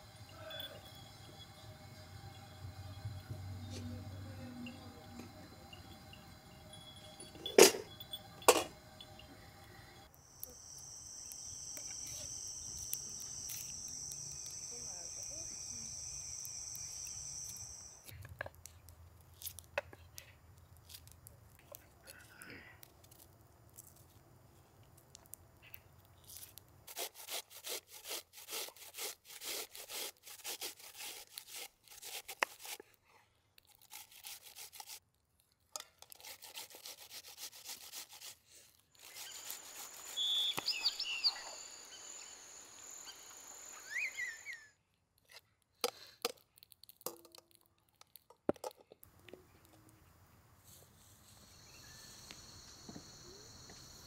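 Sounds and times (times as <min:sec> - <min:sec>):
quick cutting or scraping strokes: 0:26.9 - 0:32.8, 0:33.8 - 0:35.0, 0:36.1 - 0:40.5
short high chirps: 0:39.2 - 0:44.7.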